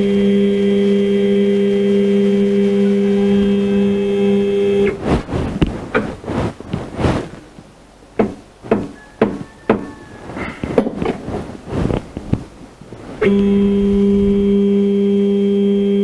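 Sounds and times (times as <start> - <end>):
metal plate tapping and knocking: 8.2 - 9.9.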